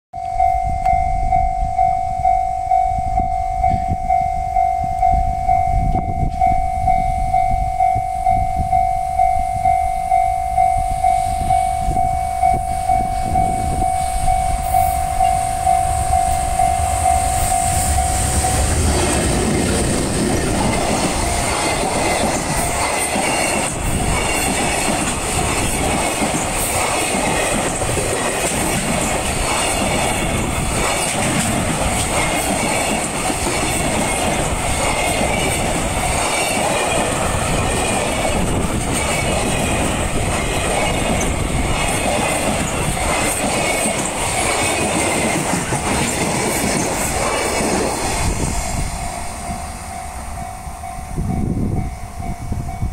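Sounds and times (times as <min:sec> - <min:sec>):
level-crossing warning bell: 0:00.2 - 0:52.9
train wheels clattering: 0:14.6 - 0:50.7.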